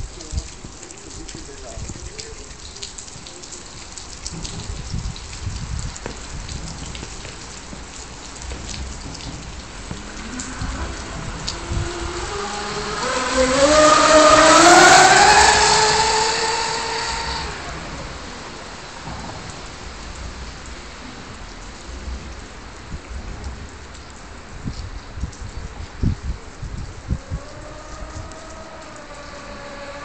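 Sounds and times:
steady rushing noise: 0:06.3 - 0:23.7, 0:26.6 - 0:30.0
electric motor whining: 0:09.9 - 0:18.1, 0:27.1 - 0:30.0.

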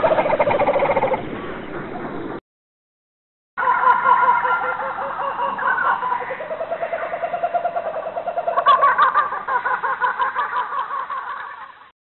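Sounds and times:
rapid pulsing animal calls: 0:00.0 - 0:01.2, 0:03.6 - 0:11.7
background animal chorus: 0:00.0 - 0:02.0, 0:03.6 - 0:11.8.

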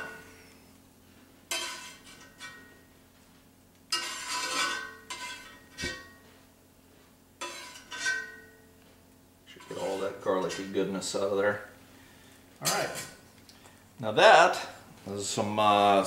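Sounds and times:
utensil scraping a frying pan: 0:01.5 - 0:02.8, 0:03.9 - 0:06.2, 0:07.4 - 0:08.5, 0:09.5 - 0:11.2.

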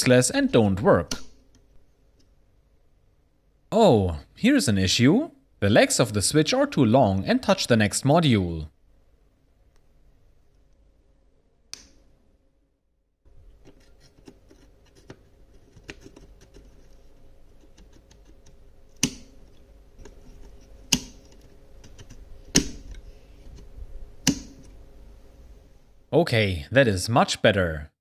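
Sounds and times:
memory modules snapping into slots: 0:22.5 - 0:22.9.

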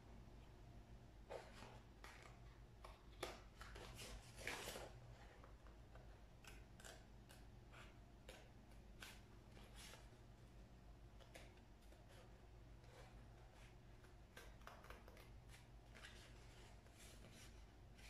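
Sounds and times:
scissors cutting paper plate: 0:12.9 - 0:16.6.

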